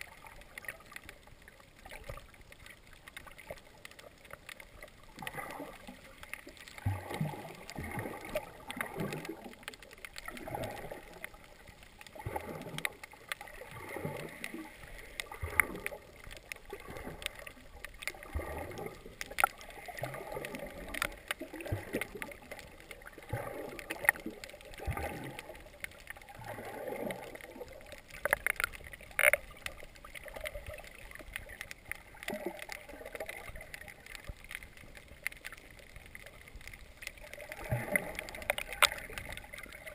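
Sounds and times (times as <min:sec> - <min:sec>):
muffled underwater swishing: 0:05.1 - 0:35.2.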